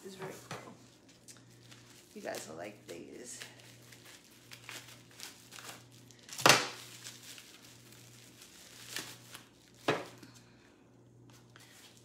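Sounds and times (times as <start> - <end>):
plastic wrap crinkling and tearing: 1.1 - 10.4.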